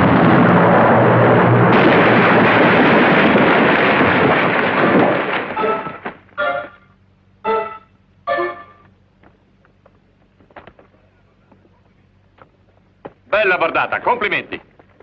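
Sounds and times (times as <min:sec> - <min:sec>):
cannon blast: 0:00.0 - 0:06.2
short music notes: 0:07.4 - 0:08.8.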